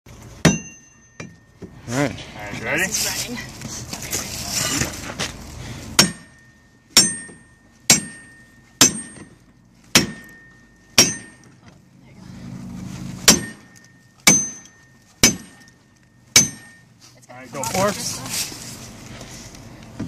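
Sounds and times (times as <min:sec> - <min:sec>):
sledgehammer clanging on metal bar: 0:00.4 - 0:01.7, 0:06.0 - 0:11.6, 0:13.2 - 0:16.8.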